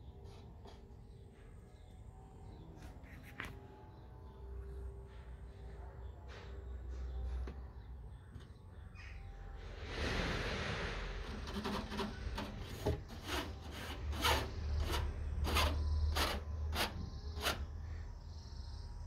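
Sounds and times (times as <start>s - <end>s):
fingers scratching wire screen: 11.2s - 17.7s.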